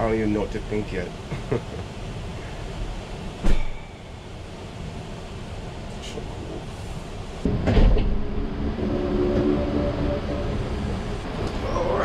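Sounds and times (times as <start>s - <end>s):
steady whirring hum: 0.0s - 12.0s
van engine rumble: 0.0s - 12.0s
van sliding door opening: 7.5s - 12.0s.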